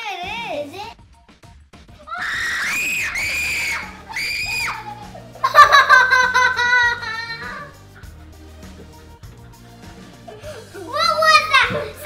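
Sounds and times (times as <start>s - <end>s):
loud music: 1.1s - 12.0s
girl screaming: 2.0s - 5.2s.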